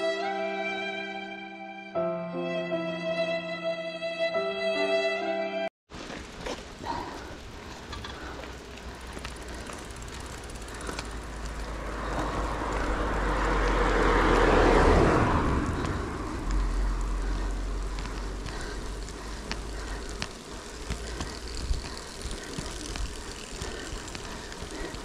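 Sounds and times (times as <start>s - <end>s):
car passing by: 9.8s - 21.2s
wind rumble on microphone: 11.7s - 25.0s.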